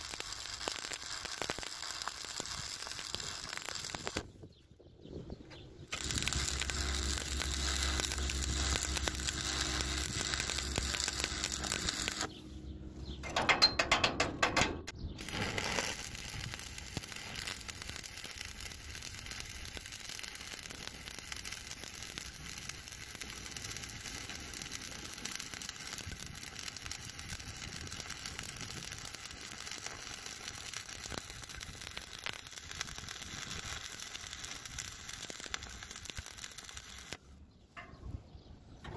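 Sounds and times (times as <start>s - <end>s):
welding arc crackling: 0.0s - 4.3s, 5.9s - 12.4s, 15.2s - 37.2s
low electrical hum: 5.9s - 32.9s.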